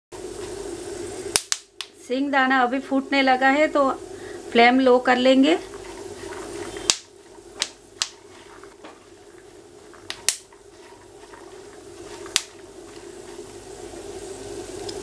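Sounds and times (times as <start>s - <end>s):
peanuts sizzling in hot oil: 0.2s - 15.0s
steady low hum: 0.2s - 15.0s
sharp pops of frying peanuts: 1.2s - 2.0s, 5.7s - 13.7s.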